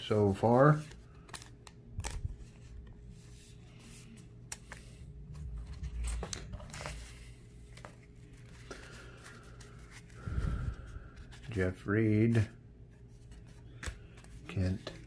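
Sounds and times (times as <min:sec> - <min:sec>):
cards clicking and rustling: 0:00.7 - 0:02.9, 0:03.8 - 0:10.2, 0:13.2 - 0:15.0.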